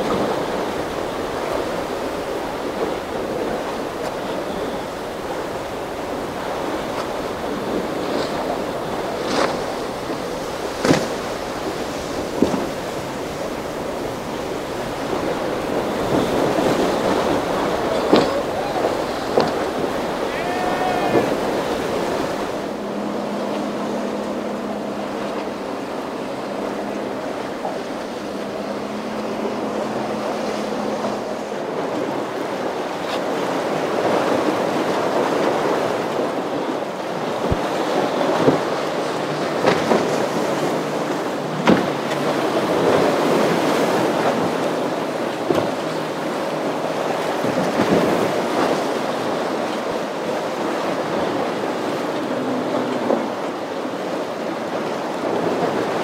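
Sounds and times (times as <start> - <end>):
boat engine drone: 0.0 - 56.0
waves breaking: 0.0 - 56.0
wind buffeting microphone: 0.0 - 56.0.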